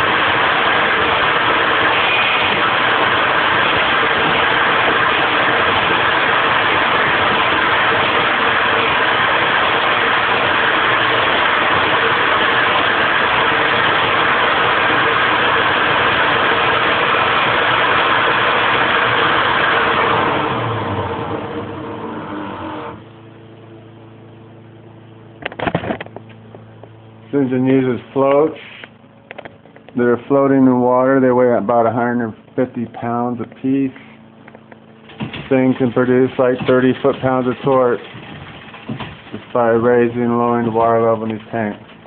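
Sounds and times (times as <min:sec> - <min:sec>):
leaf blower running: 0:00.0 - 0:23.2, 0:33.8 - 0:42.0
steady hum: 0:00.0 - 0:42.0.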